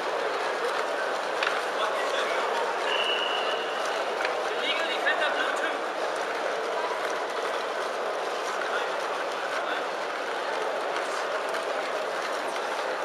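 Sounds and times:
indistinct crowd voices: 0.0 - 13.0.

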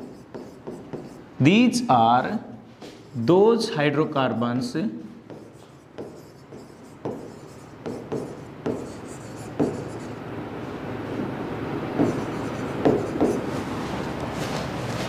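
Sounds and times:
stylus scratching on screen: 0.0 - 1.3, 5.3 - 10.2, 12.0 - 15.0.

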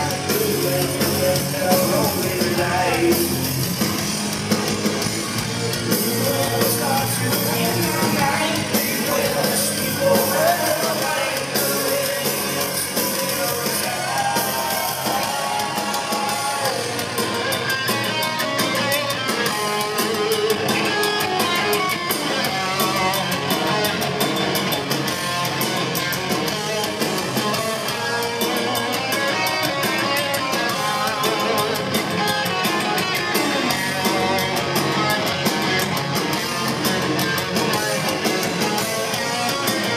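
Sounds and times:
live heavy metal band: 0.0 - 39.9.

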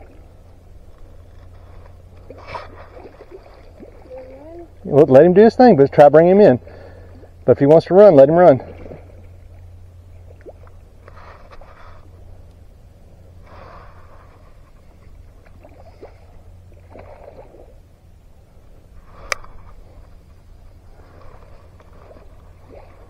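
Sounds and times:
low steady rumble: 0.0 - 23.0
fish splashing and thrashing in water: 1.5 - 4.3, 15.4 - 17.8, 20.9 - 23.0.

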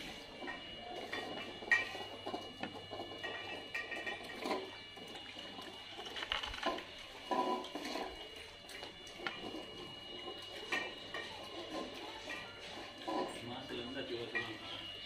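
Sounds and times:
metal bowls clinking on tiles: 0.5 - 4.8, 10.3 - 14.8
dogs chewing and gulping: 0.5 - 13.4.

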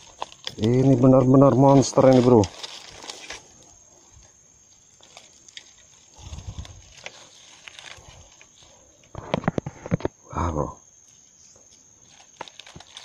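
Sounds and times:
dry leaves crackling and rustling: 0.0 - 9.1, 12.0 - 13.0.

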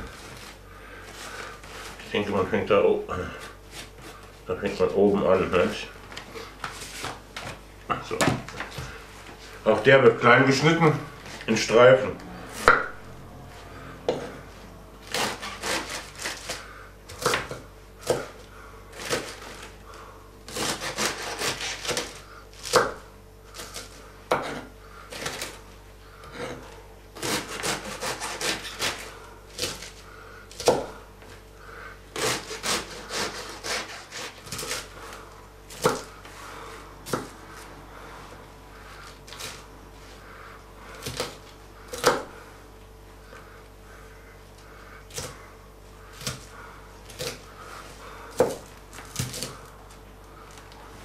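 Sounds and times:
knife slicing cabbage: 15.0 - 19.8, 20.5 - 25.6, 27.2 - 31.0, 32.1 - 36.1, 47.1 - 49.7.

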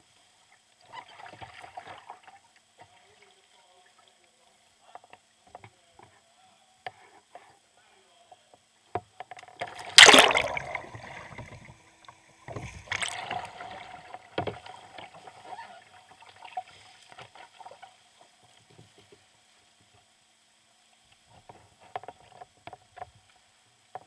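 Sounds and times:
kayak splashing in water: 9.5 - 17.9
paddle strokes splashing: 9.6 - 18.0.

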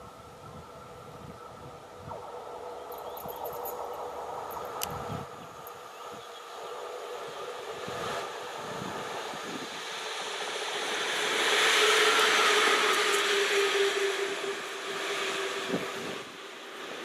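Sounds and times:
locomotive humming: 0.0 - 17.0
train wheels rumbling on rails: 2.1 - 17.0.

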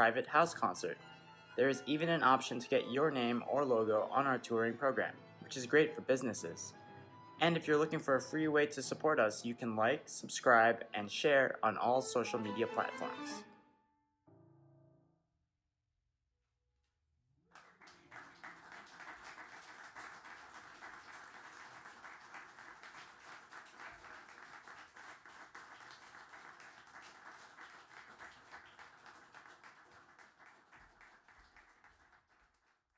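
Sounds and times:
audience applauding: 17.5 - 32.9.

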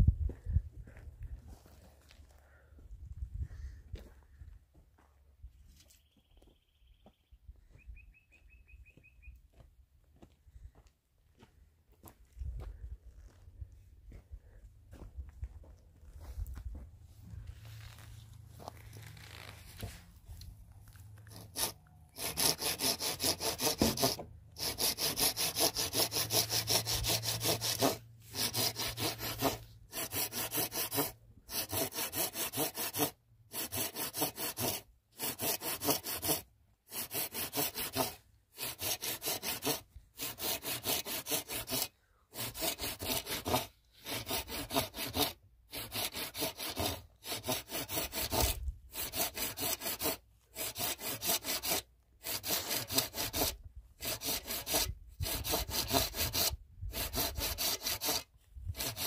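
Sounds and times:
hand saw cutting wood: 21.1 - 59.0.

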